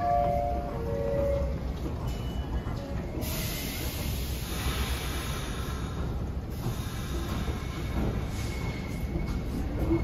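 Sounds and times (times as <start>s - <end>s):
subway train rumble: 0.0s - 10.0s
air hissing: 3.2s - 8.5s.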